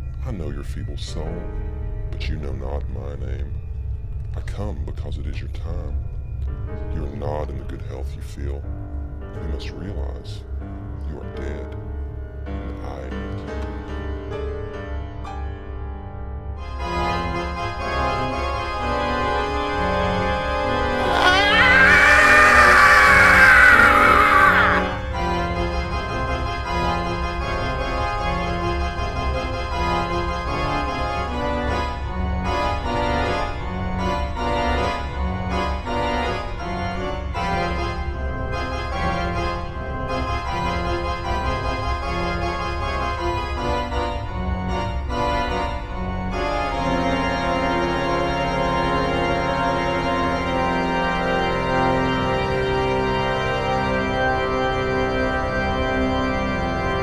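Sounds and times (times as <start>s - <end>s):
organ music: 37.2s - 57.0s.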